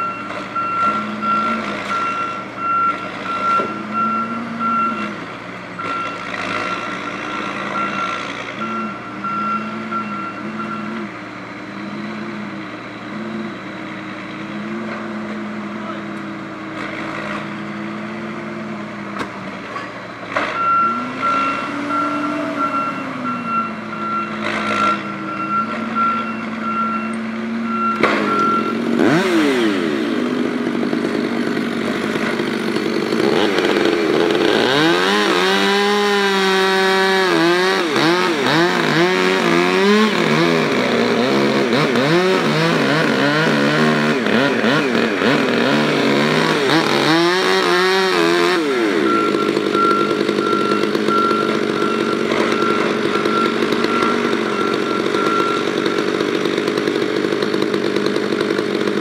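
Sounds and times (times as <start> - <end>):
chainsaw revving and cutting wood: 0.0 - 19.3, 20.2 - 59.0
short repeating beep: 5.8 - 11.0, 20.6 - 28.8, 49.0 - 55.7.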